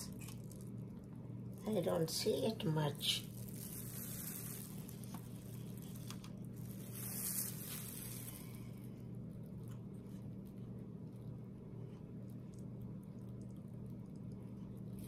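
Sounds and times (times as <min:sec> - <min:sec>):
faint low hum: 0:00.0 - 0:15.0
soft rustle: 0:03.2 - 0:13.6.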